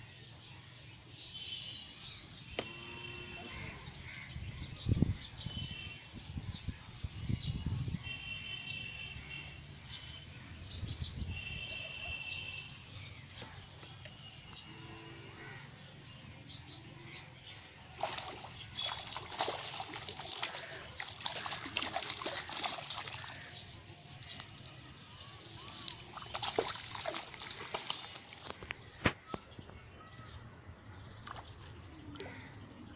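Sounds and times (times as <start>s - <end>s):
fish splashing at water surface: 18.0s - 24.9s, 25.6s - 28.7s.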